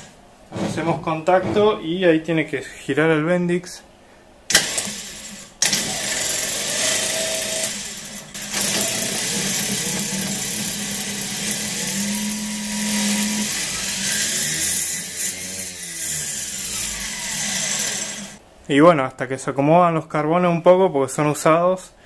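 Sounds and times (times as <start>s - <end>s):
starter motor whirring: 4.5s - 18.4s.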